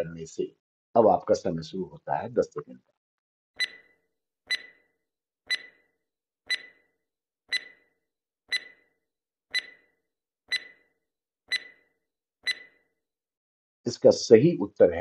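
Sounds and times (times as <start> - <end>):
timer ticking: 3.6 - 3.9, 4.5 - 4.9, 5.5 - 5.9, 6.5 - 6.9, 7.5 - 7.9, 8.5 - 8.9, 9.5 - 9.9, 10.5 - 10.9, 11.5 - 12.8.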